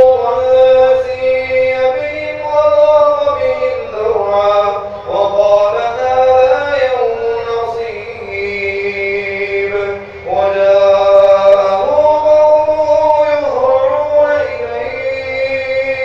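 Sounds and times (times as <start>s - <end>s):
man chanting melodically: 0.0s - 16.0s.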